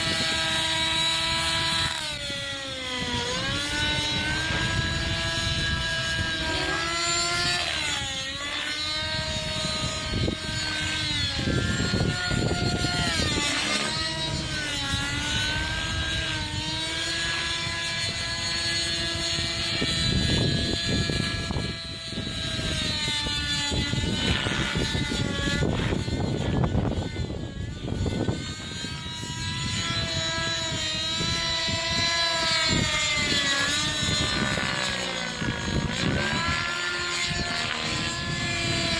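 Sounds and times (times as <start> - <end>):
model helicopter engine whine: 0.0 - 38.9.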